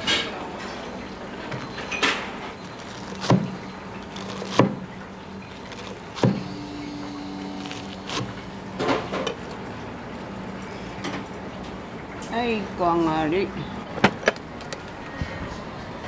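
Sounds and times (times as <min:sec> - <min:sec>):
steady low hum: 0:01.1 - 0:12.0
brief steady tone: 0:06.3 - 0:08.4.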